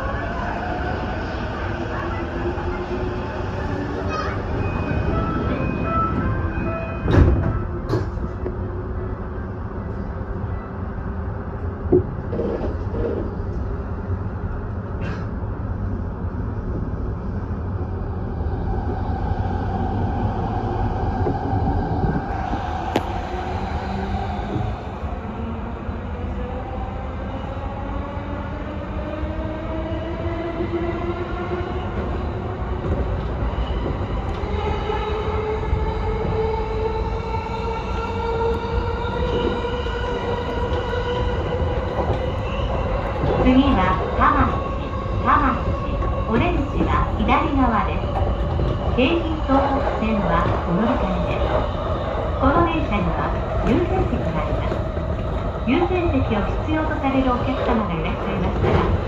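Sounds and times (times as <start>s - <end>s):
train running rumble: 30.1s - 59.0s.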